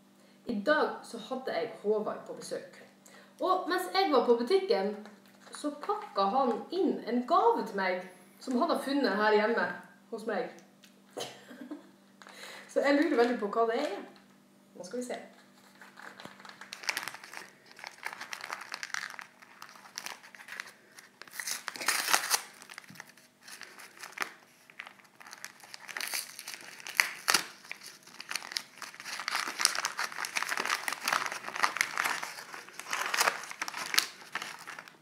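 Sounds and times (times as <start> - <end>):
paper ripping: 15.4 - 35.0
paper wrapping crinkling: 15.4 - 35.0.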